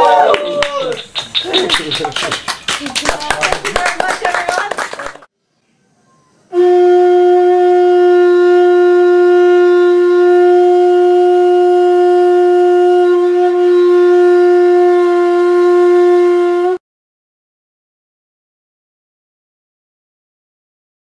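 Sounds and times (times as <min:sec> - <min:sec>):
conch shell horn note: 0:06.5 - 0:16.8.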